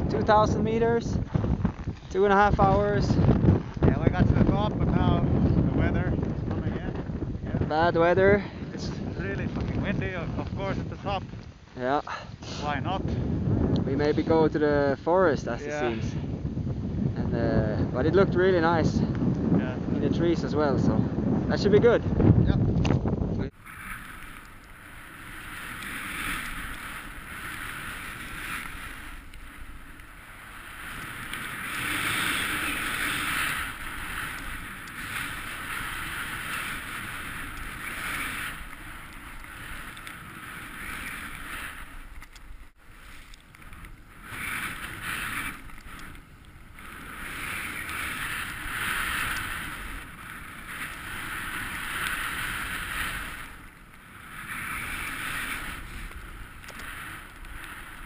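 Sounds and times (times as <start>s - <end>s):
wind rumble on microphone: 0.0s - 58.0s
snowboard sliding through powder: 23.5s - 58.0s.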